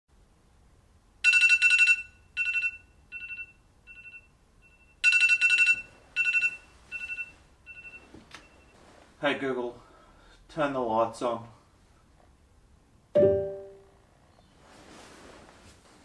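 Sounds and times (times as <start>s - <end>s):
phone alarm beeping: 1.2s - 8.8s.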